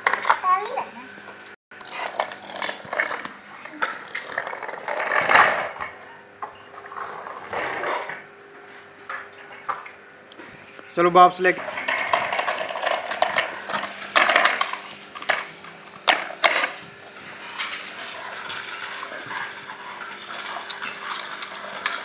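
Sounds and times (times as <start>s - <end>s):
plastic toys rattling on stone floor: 1.8s - 5.8s, 11.6s - 15.5s.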